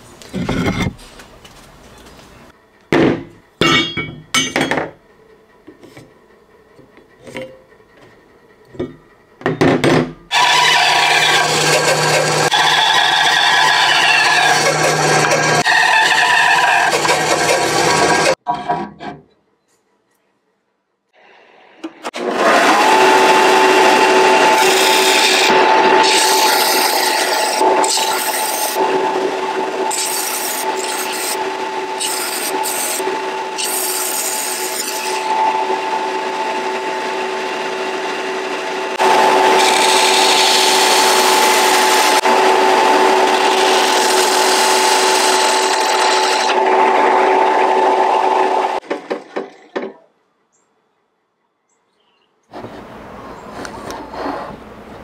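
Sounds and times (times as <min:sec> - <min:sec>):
wood grinding on sanding belt: 0:10.3 - 0:18.4, 0:22.2 - 0:48.8
belt sander motor hum: 0:34.5 - 0:48.8.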